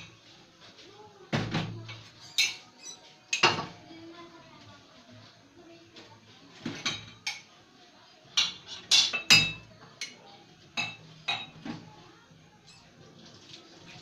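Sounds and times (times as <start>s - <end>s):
dishes clinking in sink: 1.4s - 3.8s, 6.6s - 7.5s, 8.4s - 10.2s, 10.8s - 11.9s.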